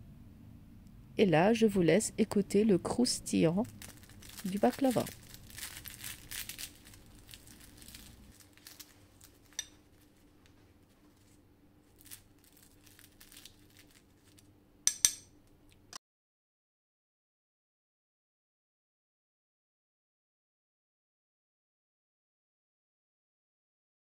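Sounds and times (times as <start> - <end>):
knife crunching through pastry: 3.7 - 9.9
knife clinking: 14.9 - 15.3.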